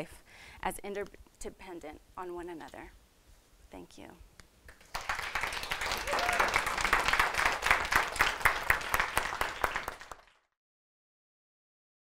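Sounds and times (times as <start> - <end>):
audience applauding: 4.7 - 10.5.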